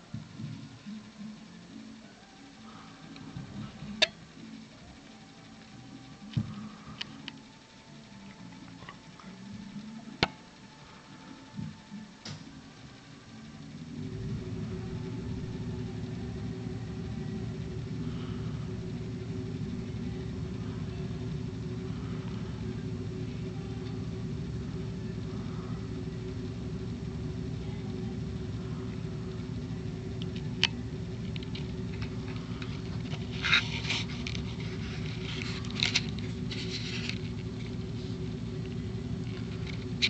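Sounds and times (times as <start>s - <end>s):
steady low hum: 0.0s - 40.0s
crackly rustling: 28.4s - 40.0s.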